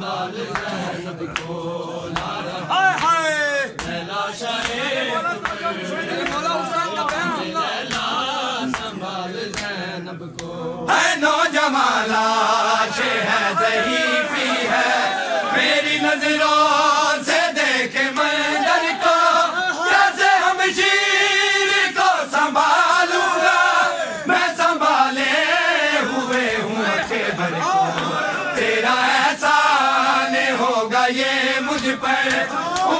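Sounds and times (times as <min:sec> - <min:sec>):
lead reciter chanting: 0:00.0 - 0:32.9
men chanting in unison: 0:00.0 - 0:32.9
chest-beating slaps: 0:01.3 - 0:06.4, 0:07.0 - 0:08.9, 0:09.5 - 0:09.8, 0:10.4 - 0:10.6, 0:26.3 - 0:26.7, 0:31.7 - 0:32.9.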